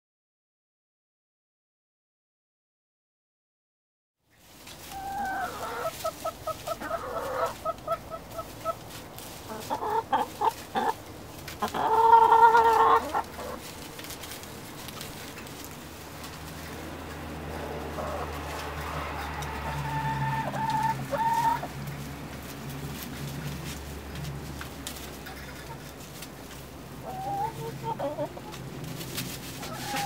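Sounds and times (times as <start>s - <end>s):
hens clucking: 4.8s - 30.0s
hen long drawn-out call: 4.9s - 8.8s, 11.6s - 13.6s, 19.0s - 21.7s, 29.6s - 30.0s.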